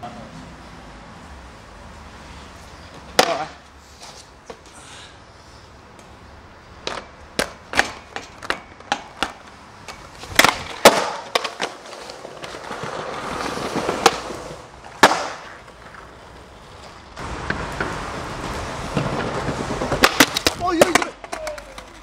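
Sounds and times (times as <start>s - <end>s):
skateboard wheels rolling: 0.0s - 22.0s
skateboard clacking on ground: 2.8s - 4.7s, 6.7s - 22.0s
skateboard slams: 3.1s - 3.6s, 6.8s - 22.0s.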